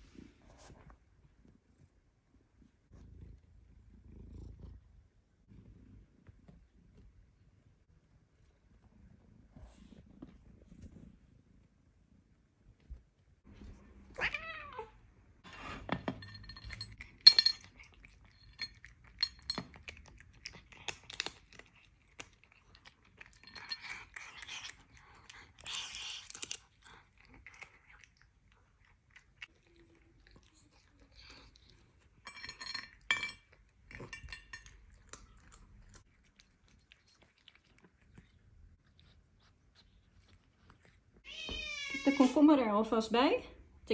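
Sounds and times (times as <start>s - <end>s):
cat meowing: 14.1s - 15.0s, 41.2s - 42.3s
cat chewing and licking: 15.5s - 41.4s.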